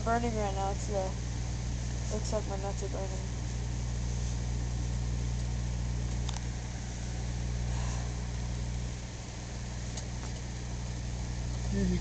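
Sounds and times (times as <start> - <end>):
electronics crackling and sizzling: 0.0 - 6.5
microwave oven humming: 0.0 - 12.0.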